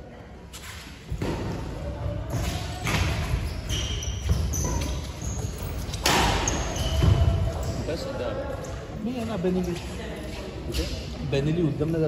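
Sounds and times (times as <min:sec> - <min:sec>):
rackets hitting shuttlecock: 0:02.3 - 0:05.0, 0:05.9 - 0:07.4
shoes squeaking on wooden floor: 0:02.3 - 0:10.8.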